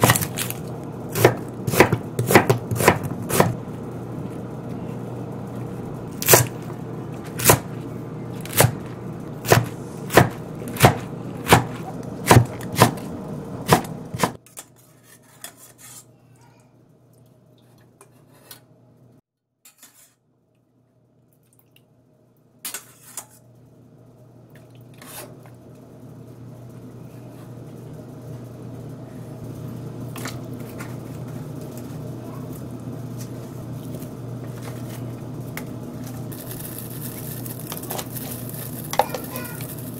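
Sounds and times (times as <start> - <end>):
knife chopping on wooden board: 1.2 - 3.6, 9.4 - 13.0, 13.7 - 14.4.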